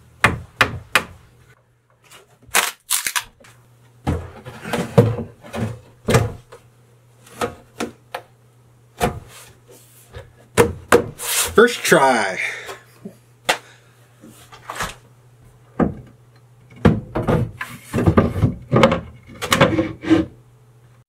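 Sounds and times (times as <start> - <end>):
sink knocking and thumping: 15.8 - 16.1, 16.7 - 19.7.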